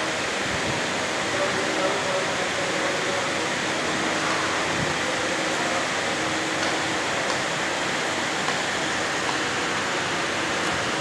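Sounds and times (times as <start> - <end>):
air-cooling equipment running: 0.0 - 11.0.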